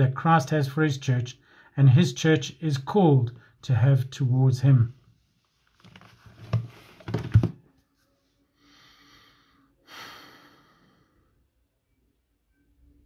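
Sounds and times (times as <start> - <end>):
knocks and rustling: 5.8 - 7.6.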